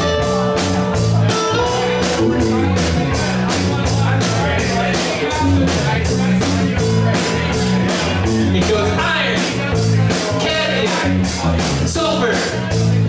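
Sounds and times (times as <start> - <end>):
rock band playing: 0.0 - 13.0
steady cymbal beat: 0.0 - 13.0.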